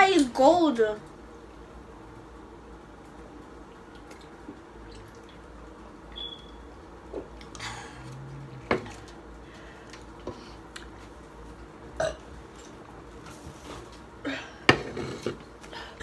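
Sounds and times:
person burping: 0:12.0 - 0:12.2.

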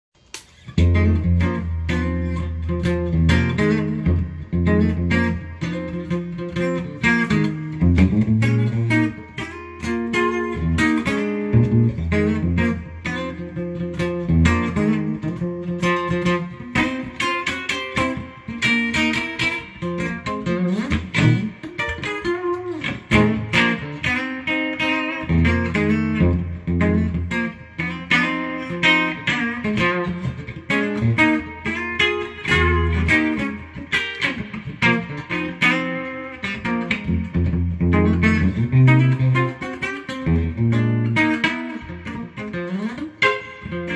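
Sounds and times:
electric guitar jazz-blues tune: 0:00.4 - 0:43.9.

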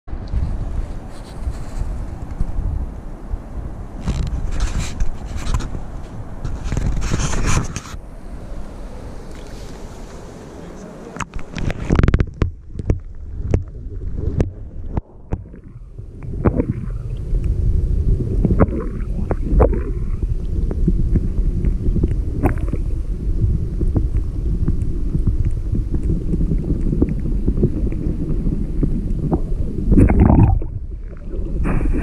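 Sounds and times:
sharp underwater clicks and knocks: 0:04.0 - 0:08.0, 0:11.2 - 0:17.6, 0:18.4 - 0:20.1, 0:20.7 - 0:22.9, 0:23.9 - 0:32.0
low underwater rumble: 0:11.2 - 0:32.0.

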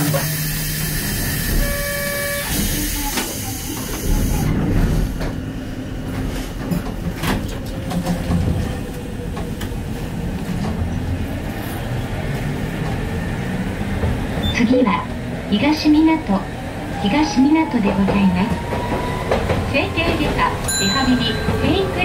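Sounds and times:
tram traction motors whining: 0:00.0 - 0:05.9, 0:10.7 - 0:22.0
short electronic tone: 0:01.6 - 0:02.5.

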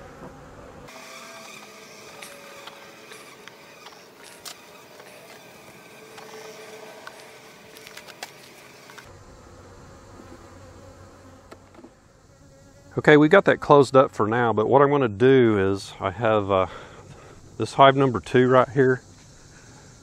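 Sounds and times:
bees buzzing: 0:00.0 - 0:13.4.

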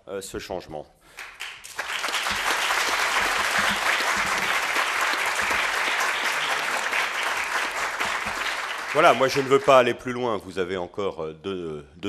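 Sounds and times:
large audience applauding: 0:01.2 - 0:09.9.

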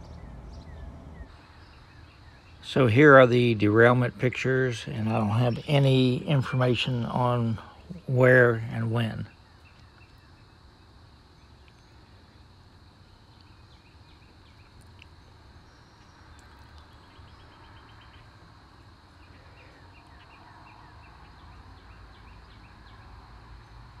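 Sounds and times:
low steady rumble: 0:00.0 - 0:09.3
small birds chirping: 0:00.0 - 0:24.0.

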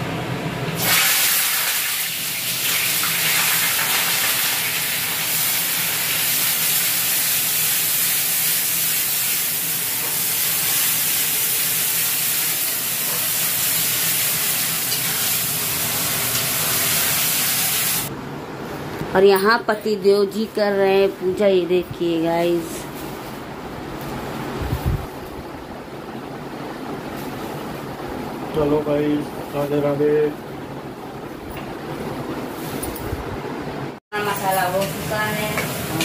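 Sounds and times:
food sizzling in hot oil: 0:00.8 - 0:18.1, 0:34.3 - 0:36.0.

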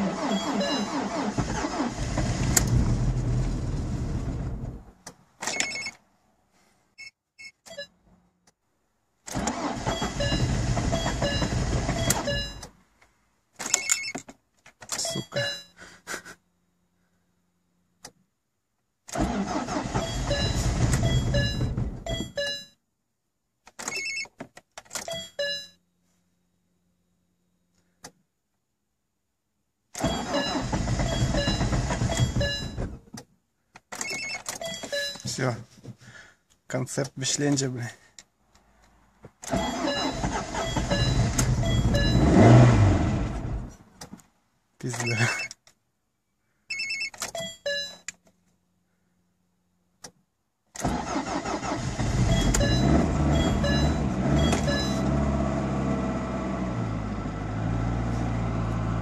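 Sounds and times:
starter motor cranking engine: 0:00.0 - 0:04.4, 0:09.3 - 0:12.4, 0:19.1 - 0:21.6, 0:39.5 - 0:43.6, 0:50.8 - 0:55.1.

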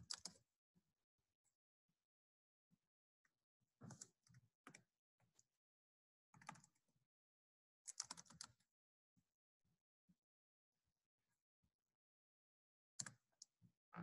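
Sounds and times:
faint typing on a keyboard: 0:00.0 - 0:00.5, 0:03.8 - 0:05.5, 0:06.3 - 0:06.8, 0:07.9 - 0:08.7, 0:13.0 - 0:14.0.

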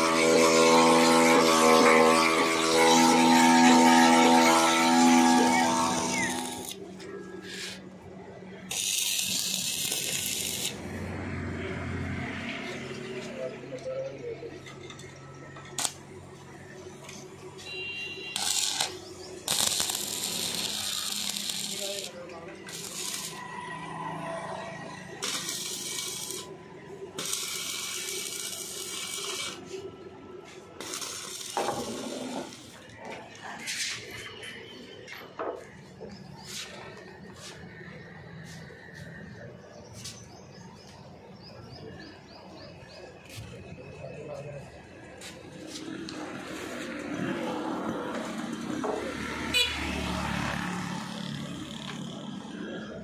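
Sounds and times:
welding arc hissing: 0:00.0 - 0:06.8, 0:08.7 - 0:11.1, 0:15.8 - 0:16.0, 0:18.3 - 0:29.9, 0:30.8 - 0:32.9.

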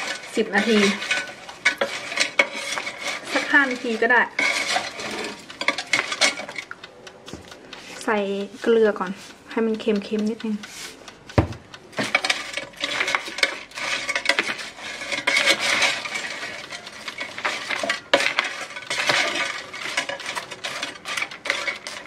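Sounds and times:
fries rattling in air fryer basket: 0:00.0 - 0:06.7, 0:12.0 - 0:22.0.

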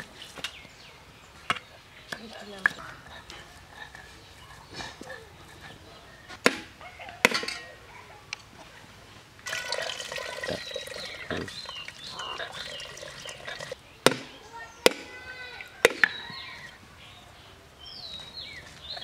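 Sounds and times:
water splashing into metal pot: 0:09.4 - 0:13.8
sharp knocks: 0:14.0 - 0:15.1.

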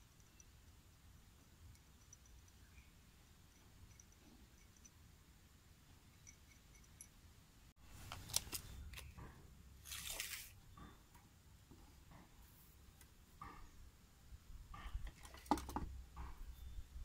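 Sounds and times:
tape measure blade sliding out: 0:09.8 - 0:10.6.

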